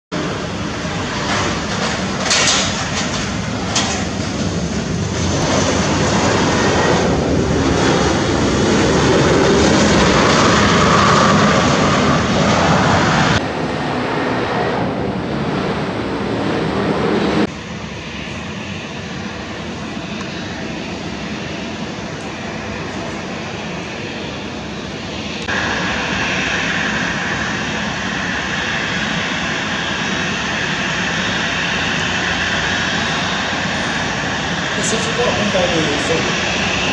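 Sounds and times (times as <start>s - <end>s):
jet engines rushing: 0.1s - 36.9s.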